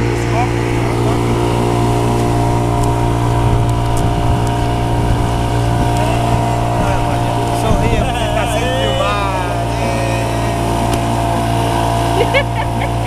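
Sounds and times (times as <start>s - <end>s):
boat motor droning: 0.0s - 13.0s.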